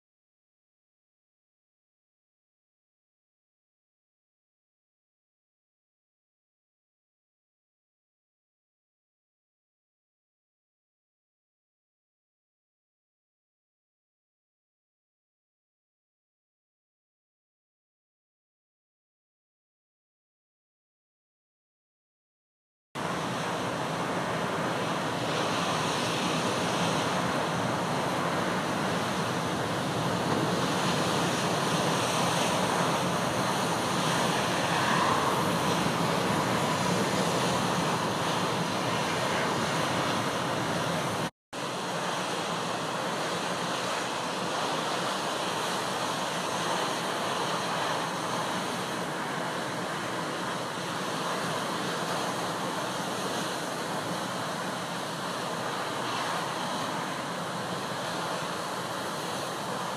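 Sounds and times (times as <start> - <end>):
gale wind: 23.0 - 59.9
surf breaking over rocks: 23.0 - 59.9.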